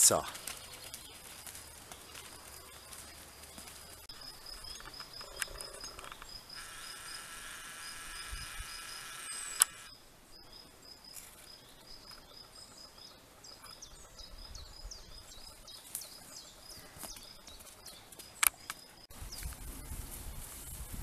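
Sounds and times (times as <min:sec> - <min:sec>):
small birds chirping: 0:00.0 - 0:20.0
sharp clicks: 0:04.6 - 0:09.9.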